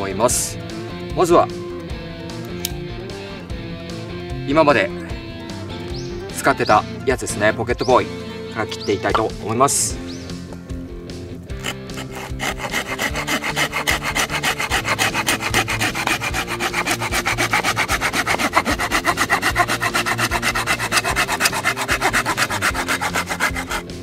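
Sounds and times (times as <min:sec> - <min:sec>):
hand saw cutting wood: 0:11.6 - 0:24.0.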